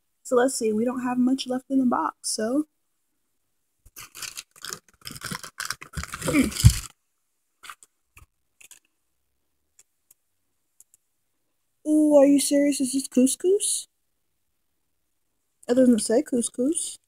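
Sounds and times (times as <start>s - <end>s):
cardboard rustling and scraping: 4.0s - 6.9s
box bump: 5.9s - 6.9s.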